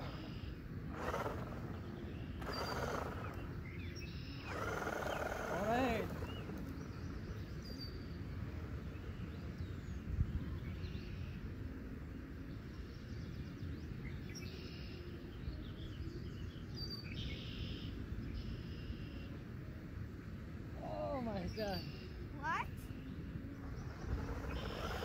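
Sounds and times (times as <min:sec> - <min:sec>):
distant surf: 0:00.0 - 0:07.4, 0:19.6 - 0:25.0
faint bird chirps: 0:00.0 - 0:08.2, 0:12.5 - 0:19.4, 0:20.8 - 0:25.0
wind: 0:00.0 - 0:25.0.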